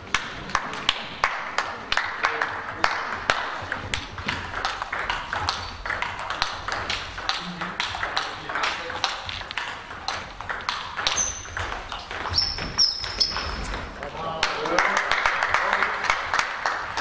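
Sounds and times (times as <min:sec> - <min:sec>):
table tennis balls clicking: 0:00.0 - 0:14.7
short high squeak: 0:11.2 - 0:11.6.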